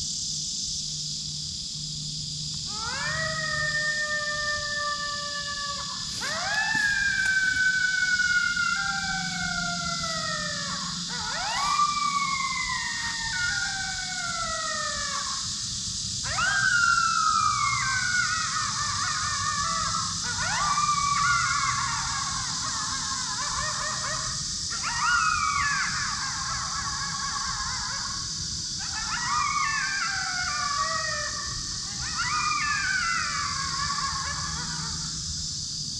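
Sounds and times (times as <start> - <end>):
coyote yips: 2.7 - 15.3
electronic coyote howls: 2.7 - 35.4.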